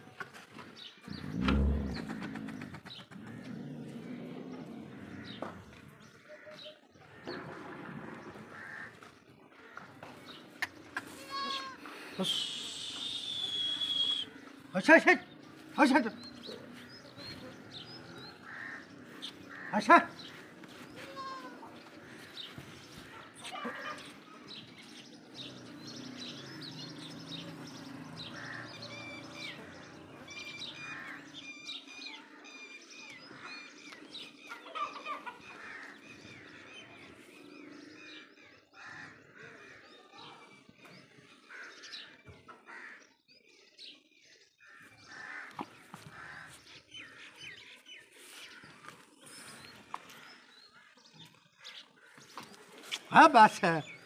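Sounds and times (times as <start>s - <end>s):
small birds chirping: 0.0s - 8.8s, 9.6s - 54.0s
chickens clucking: 34.5s - 36.0s.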